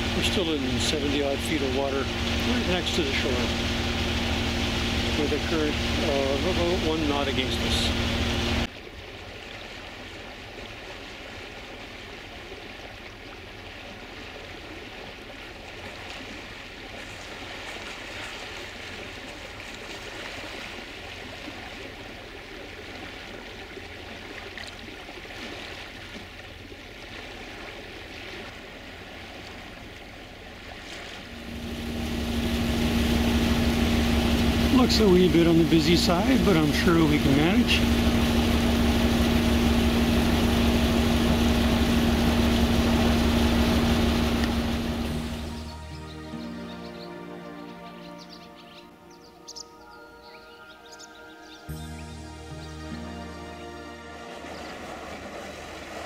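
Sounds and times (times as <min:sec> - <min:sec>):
swirling current water: 0:00.0 - 0:48.6, 0:51.2 - 0:56.0
boat engine hum: 0:00.0 - 0:56.0.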